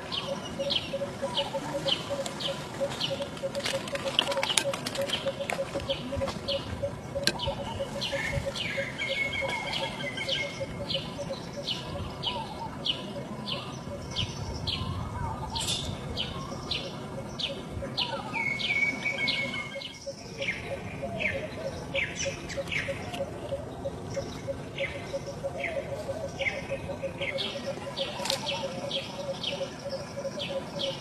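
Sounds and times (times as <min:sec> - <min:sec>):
bird chirping: 0:00.0 - 0:31.0
ticking bird call: 0:00.2 - 0:11.1.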